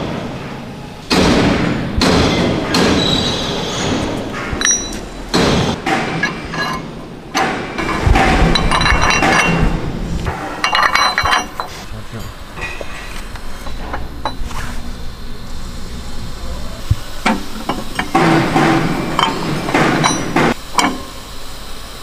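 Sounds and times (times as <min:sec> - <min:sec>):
metal blades knocking and clinking: 0:05.9 - 0:09.7, 0:10.6 - 0:11.8, 0:17.3 - 0:21.0.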